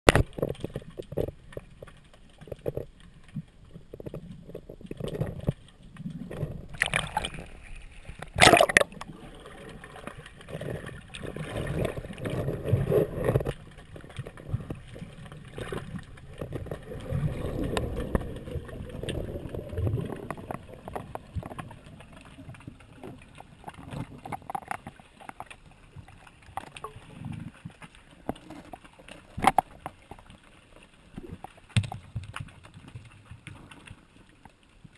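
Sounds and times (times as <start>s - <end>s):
muffled underwater water sloshing: 0.1s - 34.9s.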